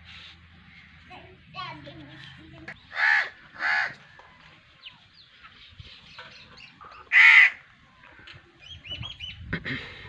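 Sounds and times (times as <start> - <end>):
small birds chirping: 0.2 - 9.6
crow cawing: 2.9 - 4.0, 7.1 - 7.6.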